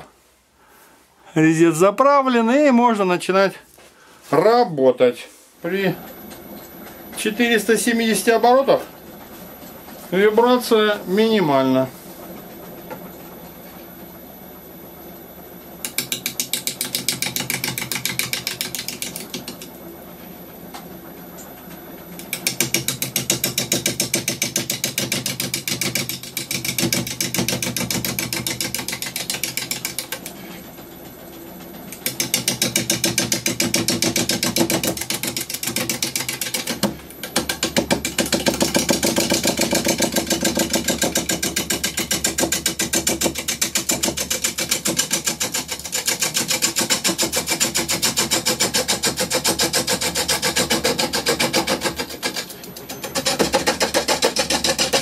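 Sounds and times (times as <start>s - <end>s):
lathe gouge knocking on wood: 32.0s - 48.6s, 53.2s - 55.0s.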